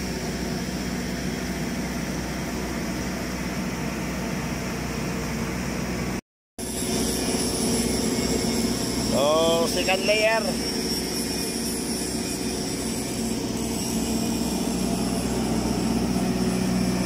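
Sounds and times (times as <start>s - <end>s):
machinery engine hum: 12.4s - 17.0s.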